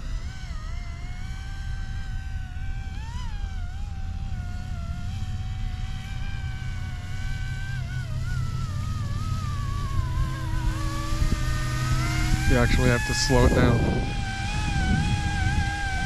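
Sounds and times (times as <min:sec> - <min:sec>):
toy helicopter rotor whine: 0:00.0 - 0:16.0
low rumble: 0:08.1 - 0:16.0.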